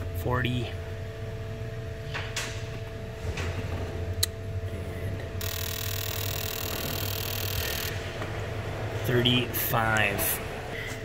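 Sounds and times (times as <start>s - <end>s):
low hum: 0.0s - 11.0s
fuel injector hissing buzz: 5.4s - 8.0s.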